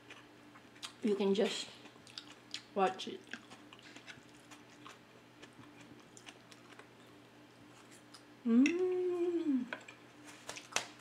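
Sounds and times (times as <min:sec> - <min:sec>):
woman humming while chewing: 0:08.4 - 0:10.0.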